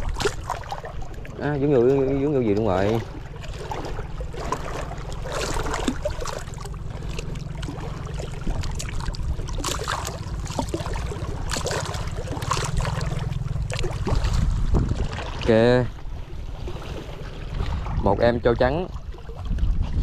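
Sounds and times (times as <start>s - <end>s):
water splashing against rocks: 0.0s - 15.9s
steady low rumble: 0.0s - 20.0s.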